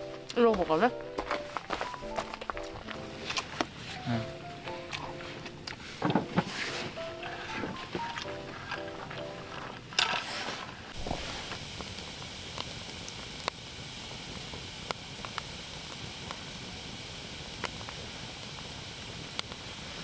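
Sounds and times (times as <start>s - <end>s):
wood popping and crackling: 0.0s - 13.6s
fire hissing: 0.0s - 20.0s.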